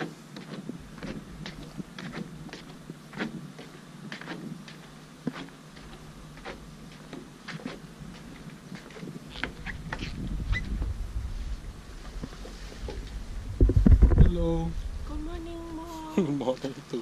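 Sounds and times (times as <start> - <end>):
footsteps on wooden planks: 0.0 - 14.2
low rumble: 9.5 - 16.6.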